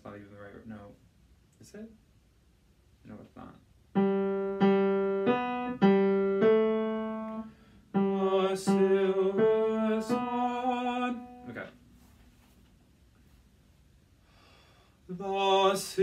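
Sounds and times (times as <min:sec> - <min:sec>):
piano notes melody: 0:04.0 - 0:11.6
person singing: 0:08.0 - 0:11.6.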